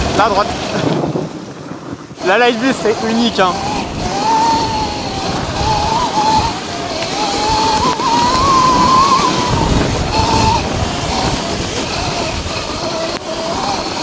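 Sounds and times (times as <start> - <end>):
electric motor whining: 0.0 - 14.0
wind and tyre noise: 0.0 - 14.0.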